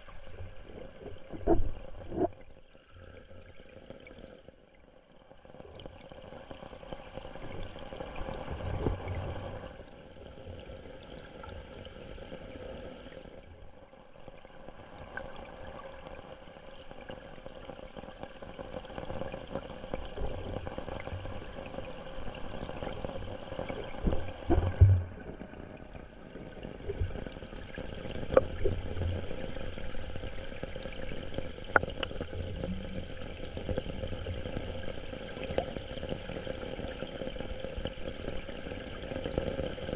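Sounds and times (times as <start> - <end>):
underwater stream flowing: 0.0 - 39.9.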